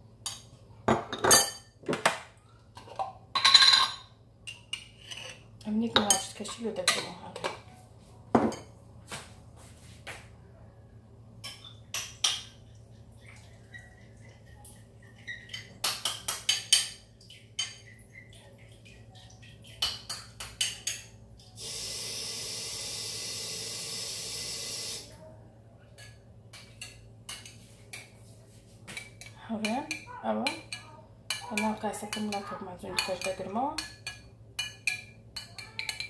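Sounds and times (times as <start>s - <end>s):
dishes clattering: 0.3s - 5.4s, 8.3s - 8.8s, 11.4s - 12.8s, 15.0s - 18.4s.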